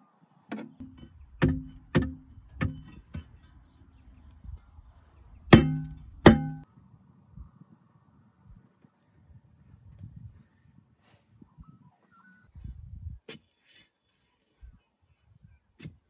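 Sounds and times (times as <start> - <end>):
metal bar clanging on steel: 0.6 - 3.4, 5.5 - 6.6.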